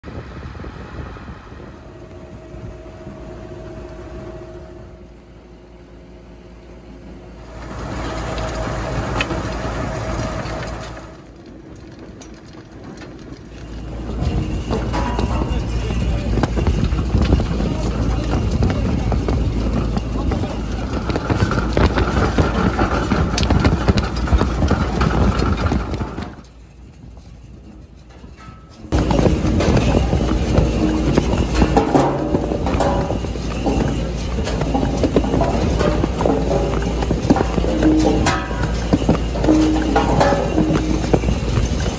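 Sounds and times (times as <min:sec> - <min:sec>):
machinery rumble: 0:00.0 - 0:41.9
faint steady whine: 0:00.4 - 0:11.2
potatoes clattering on metal bars: 0:07.5 - 0:26.6, 0:27.5 - 0:41.9.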